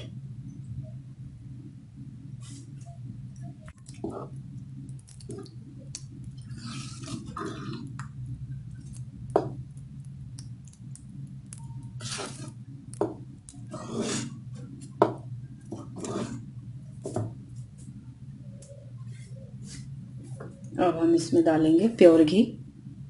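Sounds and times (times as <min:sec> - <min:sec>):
steady low hum: 0:00.0 - 0:23.0
spatula scraping metal pot: 0:06.4 - 0:07.9, 0:12.0 - 0:12.6, 0:13.6 - 0:14.7, 0:15.7 - 0:16.5.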